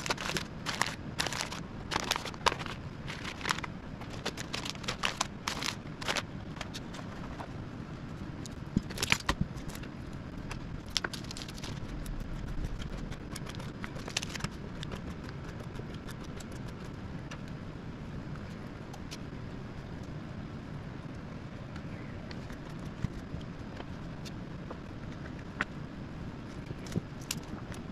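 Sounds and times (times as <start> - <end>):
pepperoni slices clicking and crinkling: 0.0 - 7.4, 8.4 - 17.4
low room hum: 0.0 - 27.9.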